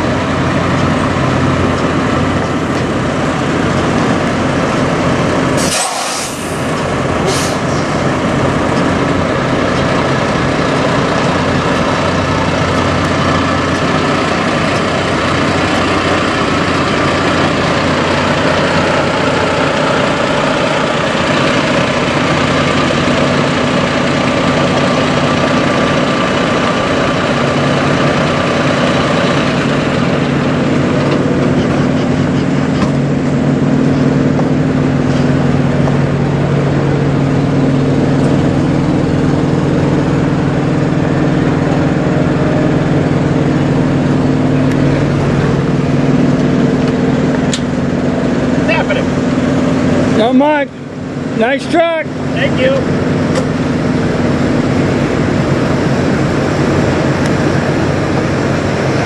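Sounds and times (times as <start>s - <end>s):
truck diesel engine running: 0.0s - 59.0s
air hiss: 5.6s - 7.9s.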